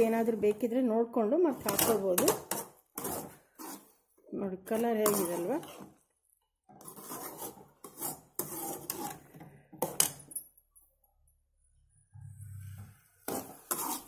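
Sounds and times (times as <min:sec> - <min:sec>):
spoon scraping a metal pan: 0:01.5 - 0:04.0, 0:04.6 - 0:06.0, 0:06.7 - 0:10.1, 0:12.3 - 0:14.0.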